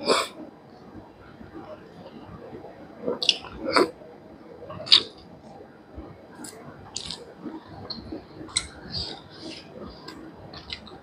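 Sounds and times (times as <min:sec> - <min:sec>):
wet mouth clicks while chewing: 0:06.4 - 0:07.2, 0:07.9 - 0:11.0.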